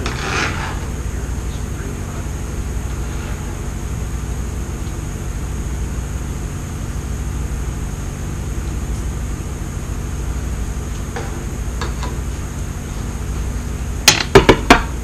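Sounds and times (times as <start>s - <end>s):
low hum: 0.0s - 15.0s
mechanical fan drone: 0.0s - 15.0s.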